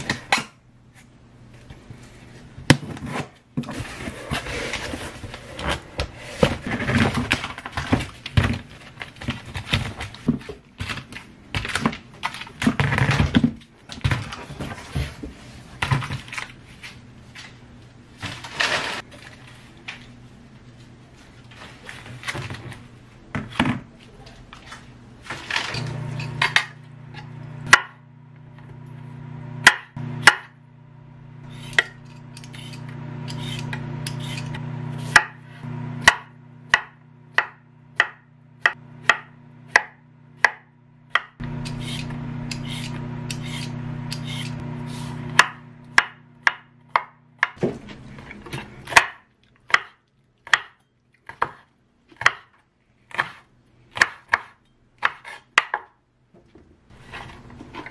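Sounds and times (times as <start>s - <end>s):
low steady hum: 14.5s - 51.2s
knife chopping on wooden board: 27.7s - 28.0s, 29.6s - 30.6s, 33.3s - 35.4s, 36.0s - 44.5s, 45.3s - 47.8s, 48.8s - 52.5s, 53.1s - 55.9s.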